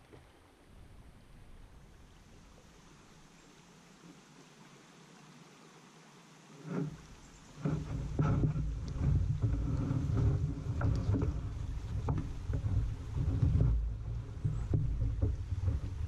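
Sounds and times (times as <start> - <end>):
constant low rumble: 6.7 - 16.0.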